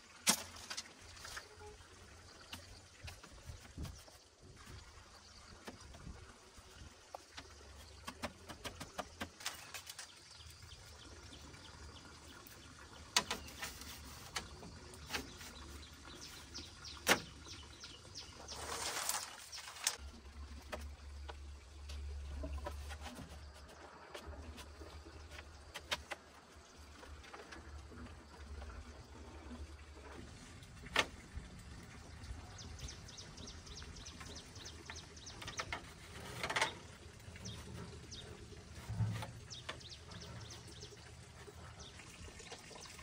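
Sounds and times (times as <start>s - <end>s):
bamboo knocking and clattering: 2.5s - 4.7s, 7.1s - 10.2s, 13.1s - 16.4s, 18.6s - 28.2s
bamboo rustling scrape: 13.5s - 16.4s, 18.4s - 20.0s.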